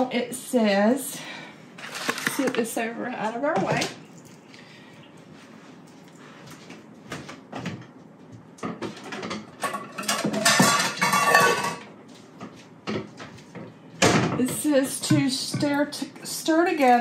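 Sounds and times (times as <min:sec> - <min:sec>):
dishes and bowls clattering: 0:08.8 - 0:11.9.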